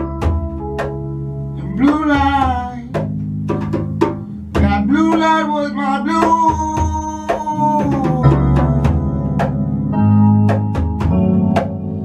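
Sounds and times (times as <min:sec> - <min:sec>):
drum hits: 0:00.0 - 0:01.2, 0:01.8 - 0:05.6, 0:06.2 - 0:09.8, 0:10.4 - 0:12.0
electric guitar: 0:00.0 - 0:12.0
man singing: 0:01.6 - 0:03.1, 0:04.6 - 0:10.0.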